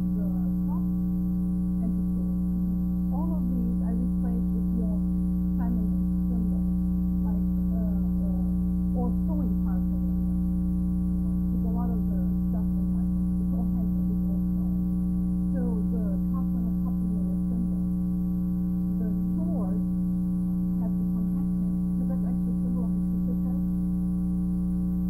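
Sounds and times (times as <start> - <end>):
faint woman speaking: 0.0 - 0.9, 3.1 - 10.2, 11.5 - 14.8, 15.5 - 18.0, 18.9 - 19.9, 20.8 - 23.7
electrical hum: 0.0 - 25.0.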